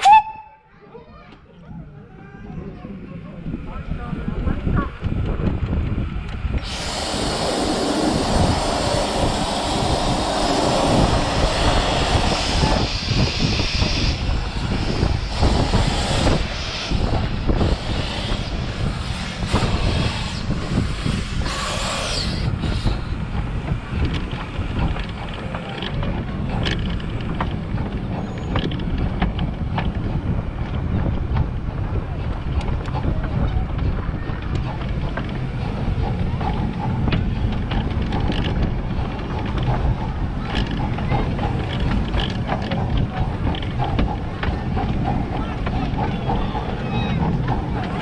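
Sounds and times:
steady low rumble: 0:01.5 - 0:48.0
wind on microphone: 0:01.7 - 0:48.0
steam locomotive chuffing: 0:03.7 - 0:48.0
wheels clattering over rails: 0:04.0 - 0:48.0
steam hissing from locomotive: 0:06.5 - 0:25.6, 0:35.1 - 0:48.0.

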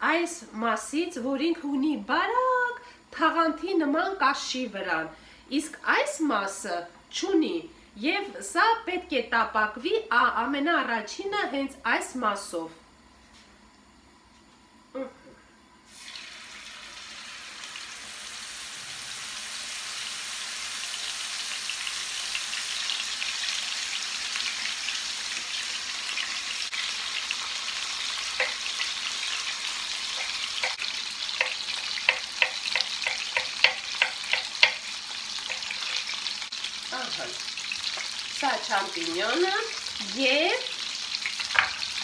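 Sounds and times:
fish sizzling in a frying pan: 0:15.9 - 0:42.0.

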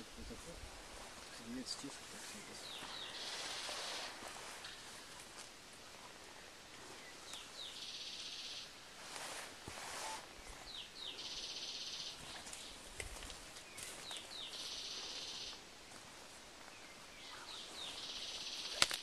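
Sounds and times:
rustle of vegetation: 0:00.0 - 0:19.0
small bird singing: 0:02.4 - 0:05.0, 0:06.8 - 0:08.8, 0:10.0 - 0:12.9, 0:13.6 - 0:15.6, 0:16.6 - 0:19.0.

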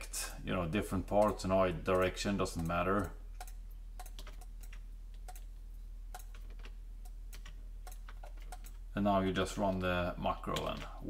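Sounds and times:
low electrical hum: 0:00.0 - 0:11.0
computer mouse clicking: 0:01.2 - 0:05.5, 0:06.1 - 0:08.8.

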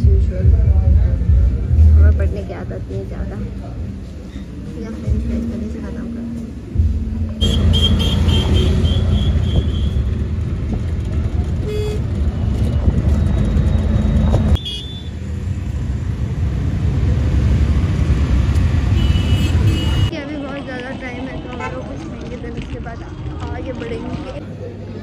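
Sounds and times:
auto-rickshaw engine and road rumble: 0:00.0 - 0:25.0.

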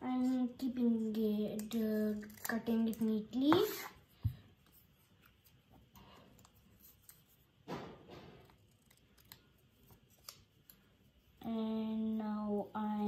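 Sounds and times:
scissors cutting paper: 0:01.4 - 0:03.9, 0:06.4 - 0:07.4, 0:08.3 - 0:10.9.

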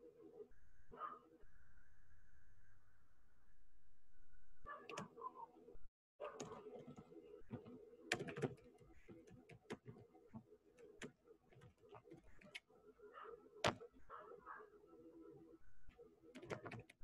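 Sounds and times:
keyboard and mouse clicks: 0:04.8 - 0:05.2, 0:06.3 - 0:12.6, 0:16.3 - 0:17.0.

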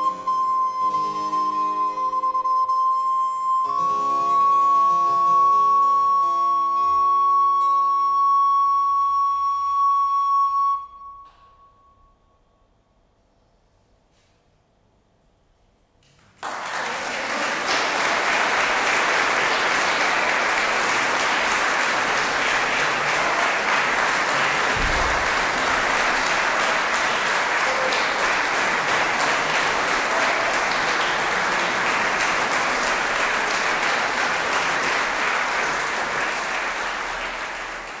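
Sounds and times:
audience applauding: 0:16.2 - 0:38.0.

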